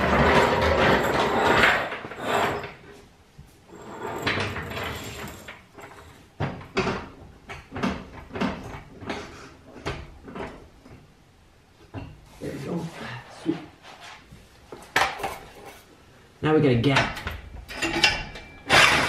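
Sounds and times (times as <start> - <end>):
floor jack rattling on concrete: 0.0 - 2.9, 3.7 - 10.6, 17.7 - 19.0.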